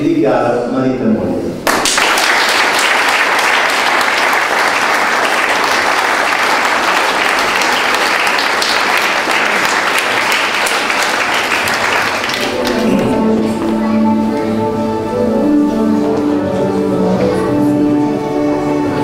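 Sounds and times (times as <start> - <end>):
crowd applauding: 1.6 - 13.7
instrumental music: 12.0 - 19.0.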